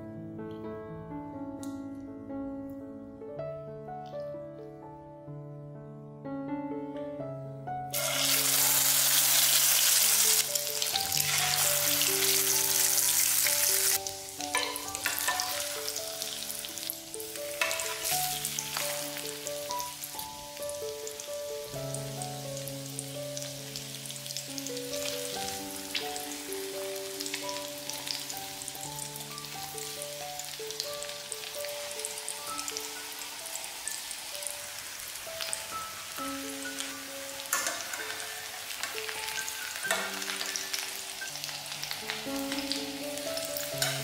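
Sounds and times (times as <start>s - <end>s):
zucchini sizzling in hot oil: 7.9s - 44.0s
oil crackles: 36.6s - 44.0s.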